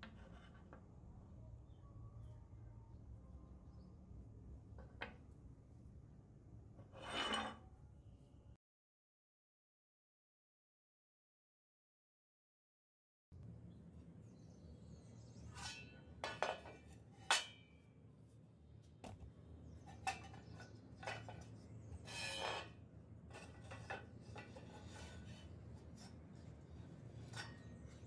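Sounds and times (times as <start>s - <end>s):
scraping rub: 20.2s - 28.0s.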